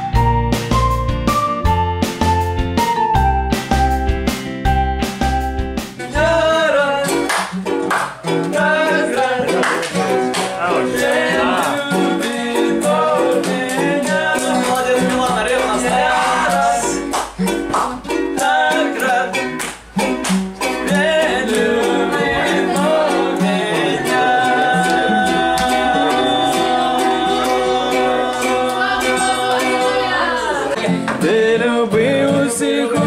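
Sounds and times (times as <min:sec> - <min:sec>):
acoustic guitar and ukulele strumming: 0:00.0 - 0:33.0
sharp claps: 0:07.2 - 0:08.6, 0:09.4 - 0:10.7, 0:13.3 - 0:20.8
voices singing: 0:08.2 - 0:19.6, 0:20.6 - 0:33.0.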